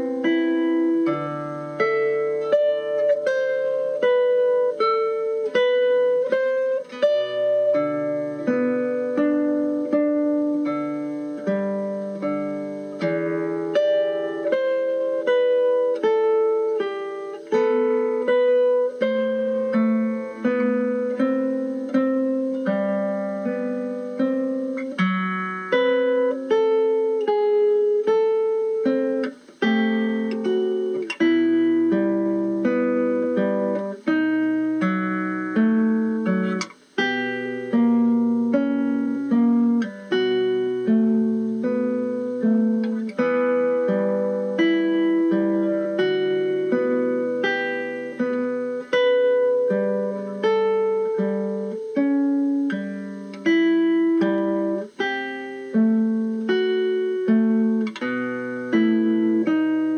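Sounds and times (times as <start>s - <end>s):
plucked guitar music: 0.0s - 59.9s.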